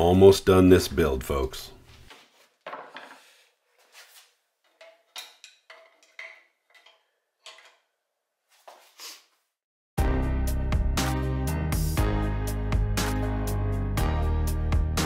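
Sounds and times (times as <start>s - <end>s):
faint metal clinks and taps: 4.7s - 7.8s.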